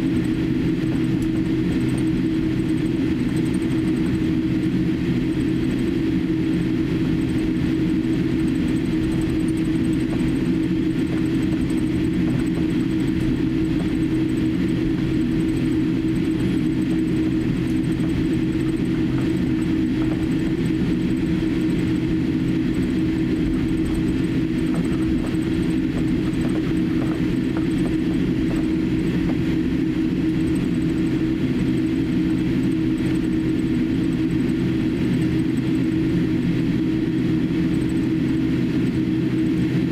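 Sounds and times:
aircraft cabin engine hum: 0:00.0 - 0:39.9.

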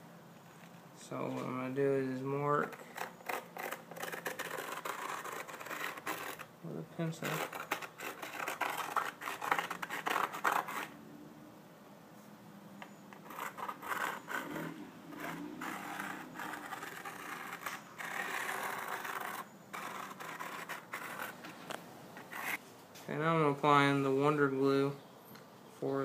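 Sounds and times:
pencil scraping on dust cap: 0:02.7 - 0:06.4, 0:07.0 - 0:10.9, 0:13.1 - 0:21.6.

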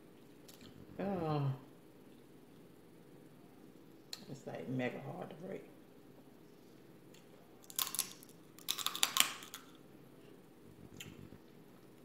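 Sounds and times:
crab shells cracking: 0:07.6 - 0:09.8.

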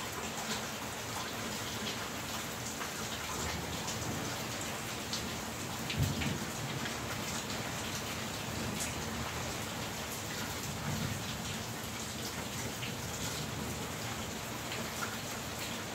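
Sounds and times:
steady rain hiss: 0:00.0 - 0:15.9.

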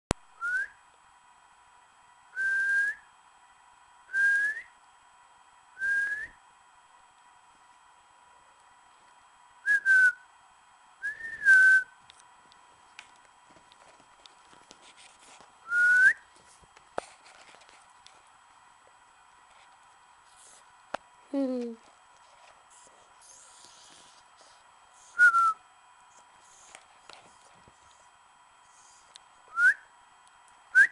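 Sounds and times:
person whistling short notes: 0:11.1 - 0:12.0, 0:25.1 - 0:25.6.

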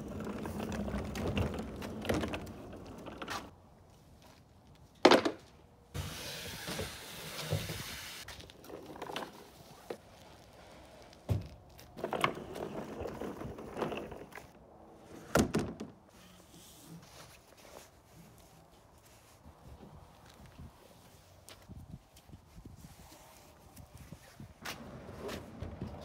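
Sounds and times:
kayak scraping in truck bed: 0:00.0 - 0:03.5, 0:12.0 - 0:15.3, 0:24.6 - 0:26.0.

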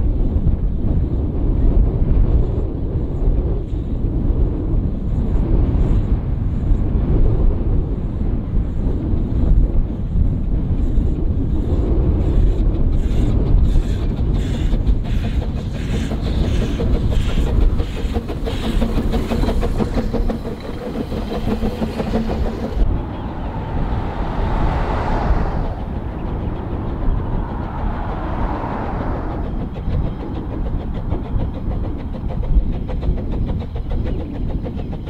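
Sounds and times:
steam locomotive exhaust beats: 0:00.0 - 0:35.0
train running on rails: 0:00.0 - 0:35.0.

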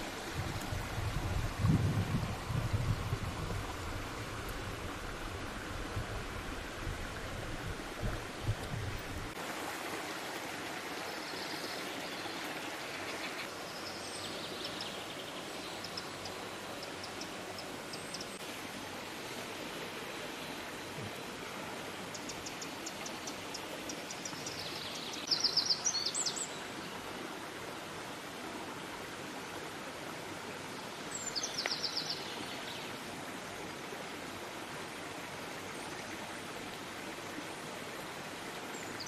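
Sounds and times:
forest stream rushing: 0:00.0 - 0:39.0
songbirds chirping: 0:10.9 - 0:18.4, 0:19.3 - 0:27.2, 0:30.7 - 0:33.1.

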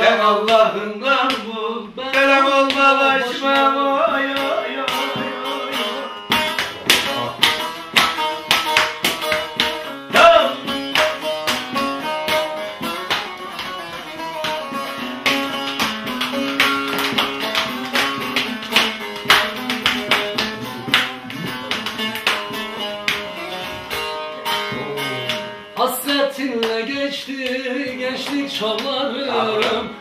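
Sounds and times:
plucked long-necked lute: 0:03.2 - 0:25.9.

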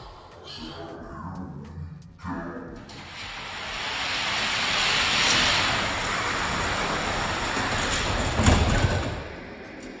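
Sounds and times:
toy cars rolling down plastic track: 0:03.5 - 0:09.2.

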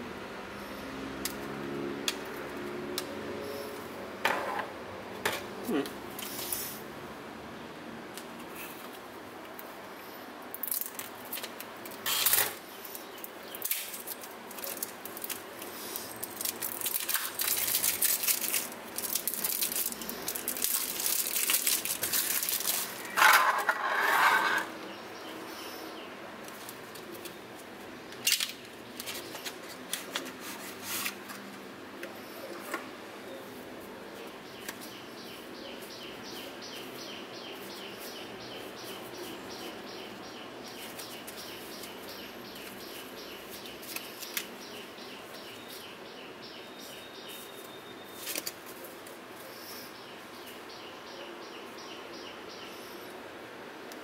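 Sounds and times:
cellophane crinkling and tearing: 0:13.6 - 0:23.2.

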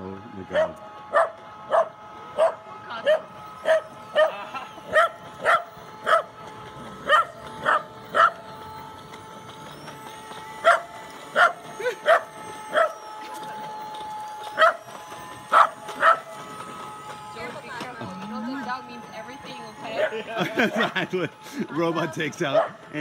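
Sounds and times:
faint steady whine: 0:00.0 - 0:23.0
small dog barking: 0:00.5 - 0:06.3, 0:07.1 - 0:08.4, 0:11.4 - 0:13.0, 0:14.6 - 0:14.8, 0:15.5 - 0:16.2.

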